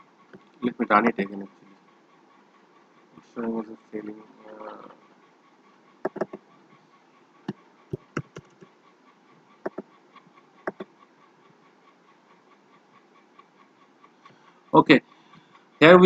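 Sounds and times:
faint steady hiss: 0.0s - 16.0s
mouse and keyboard clicks: 6.1s - 6.4s, 7.5s - 8.7s, 9.7s - 9.9s, 10.7s - 10.9s.

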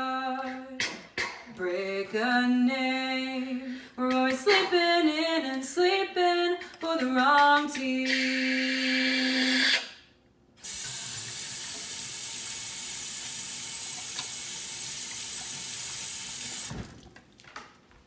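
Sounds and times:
tap running into a sink: 10.6s - 17.2s.

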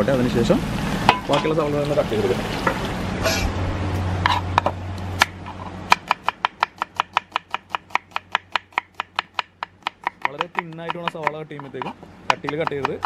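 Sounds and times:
steady low hum: 0.0s - 12.5s.

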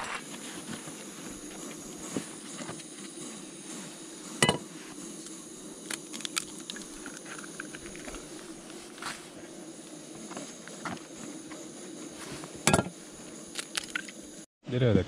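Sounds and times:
gas stove hissing: 0.0s - 14.5s
egg cracking: 5.8s - 8.5s, 13.5s - 14.1s.

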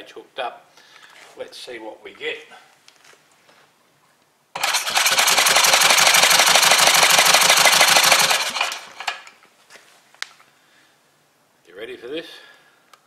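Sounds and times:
electric starter cranking engine: 4.6s - 9.4s.

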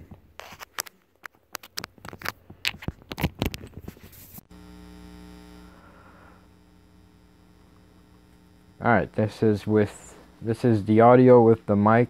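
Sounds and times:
steady electrical hum: 3.2s - 12.0s.

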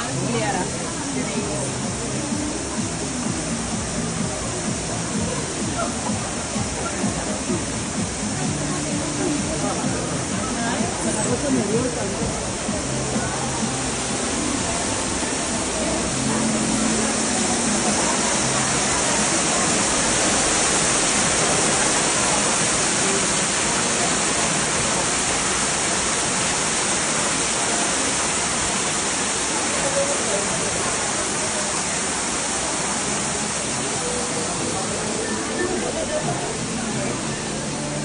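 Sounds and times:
water pouring and splashing: 0.0s - 35.1s.

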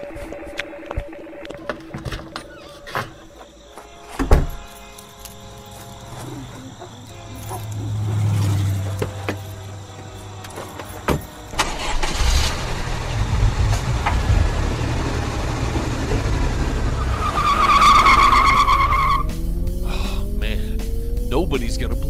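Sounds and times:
car engine rumbling: 4.4s - 22.0s.

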